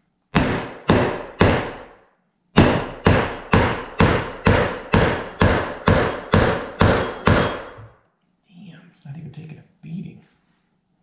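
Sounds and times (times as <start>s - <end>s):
hammer striking metal punch: 0.3s - 2.0s, 2.6s - 8.0s.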